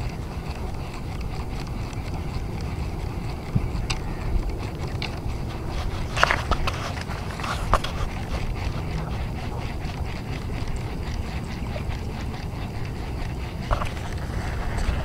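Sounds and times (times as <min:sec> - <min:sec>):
wind rumble on microphone: 0:00.0 - 0:15.0
short clicks and scrapes: 0:03.4 - 0:15.0.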